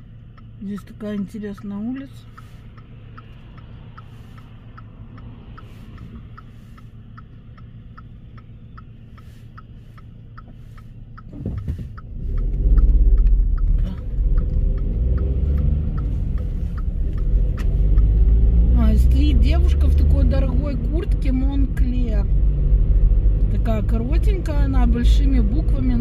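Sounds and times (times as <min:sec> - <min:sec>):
engine and road rumble: 0:00.0 - 0:26.0
turn signal ticking: 0:00.0 - 0:26.0
car passing by: 0:02.3 - 0:06.9.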